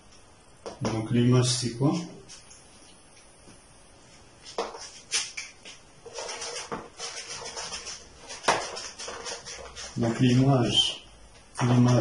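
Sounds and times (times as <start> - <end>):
eraser rubbing on whiteboard: 4.5 - 10.9.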